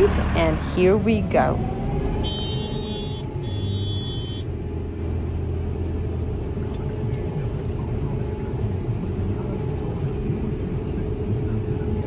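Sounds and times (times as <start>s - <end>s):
harvester engine drone: 0.0s - 12.0s.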